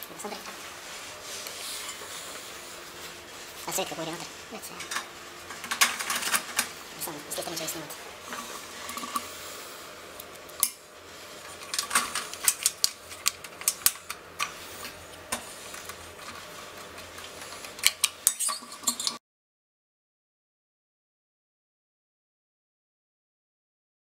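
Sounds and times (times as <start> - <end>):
low steady hum: 0.0 - 19.2.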